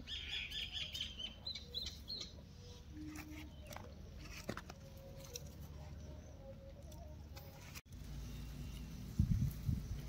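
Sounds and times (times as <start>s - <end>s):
distant bird calls: 0.0s - 7.3s.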